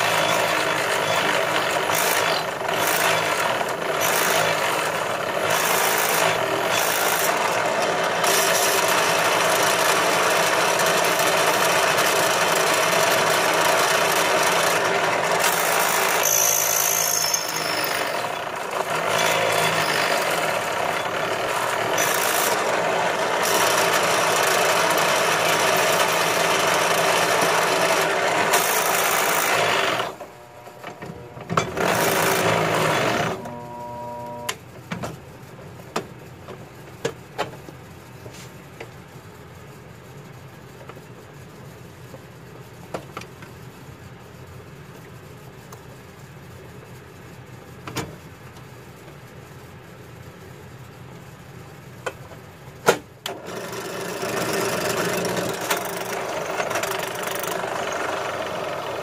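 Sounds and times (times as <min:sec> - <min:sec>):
drill bit scraping metal: 0:00.0 - 0:34.4
drill press motor hum: 0:00.0 - 0:34.7, 0:53.2 - 0:59.0.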